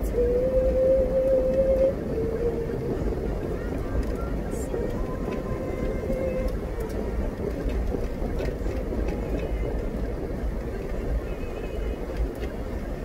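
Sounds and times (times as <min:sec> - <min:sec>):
road and engine rumble in car: 0:00.0 - 0:13.0
faint ticks: 0:03.6 - 0:12.8.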